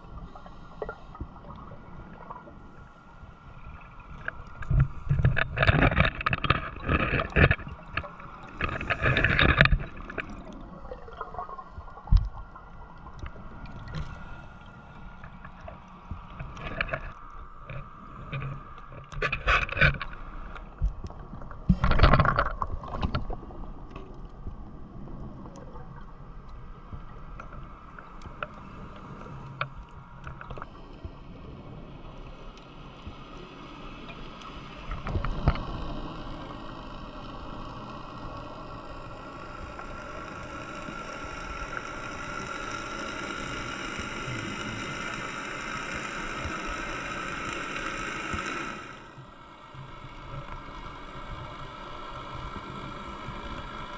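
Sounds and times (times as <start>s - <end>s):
underwater hiss: 0.0s - 5.4s, 13.3s - 15.7s, 33.1s - 53.9s
scuba regulator bubbles: 0.0s - 18.6s.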